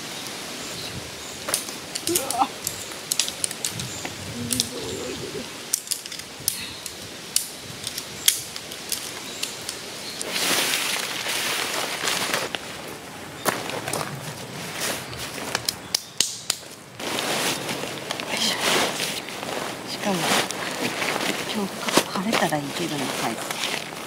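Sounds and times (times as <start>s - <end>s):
tent poles clicking: 1.4s - 4.9s, 5.6s - 24.0s
tent fabric rustling: 7.6s - 15.8s, 16.6s - 24.0s.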